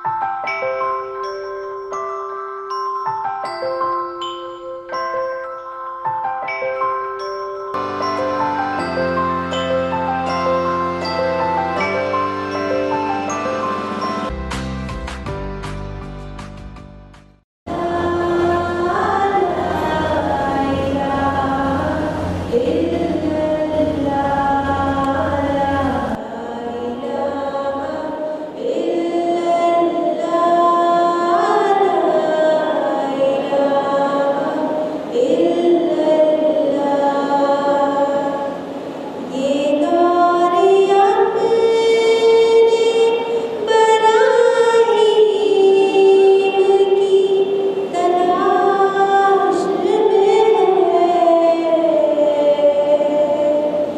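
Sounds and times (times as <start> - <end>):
low steady hum: 17.7 - 29.0
woman singing solo: 17.7 - 53.9.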